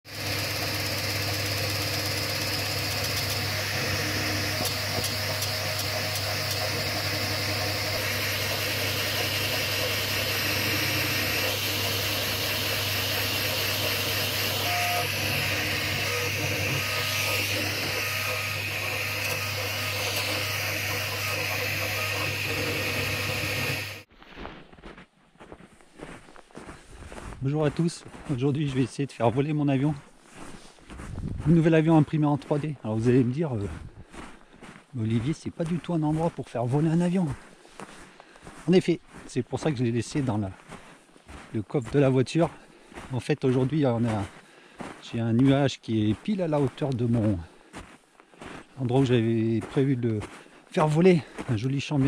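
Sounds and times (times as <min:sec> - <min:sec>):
printer fans and motors humming: 0:00.1 - 0:24.0.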